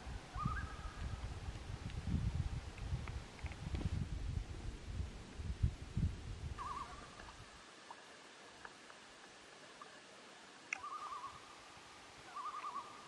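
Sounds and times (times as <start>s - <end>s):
loon calling: 0.3s - 1.0s, 6.6s - 8.0s, 10.7s - 11.5s, 12.2s - 13.0s.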